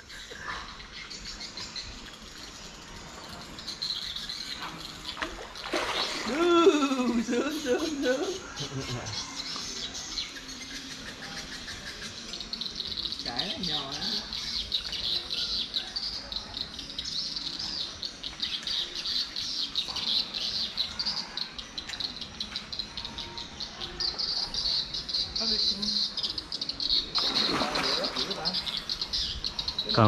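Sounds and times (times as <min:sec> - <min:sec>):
birds chirping: 0:00.0 - 0:30.0
fish splashing in water: 0:04.9 - 0:06.8, 0:27.0 - 0:29.0
insects chirping: 0:18.1 - 0:30.0.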